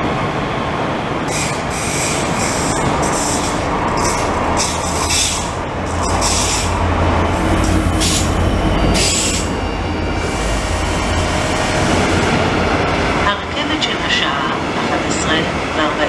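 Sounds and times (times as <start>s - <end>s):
passenger train passing: 0.0s - 16.0s.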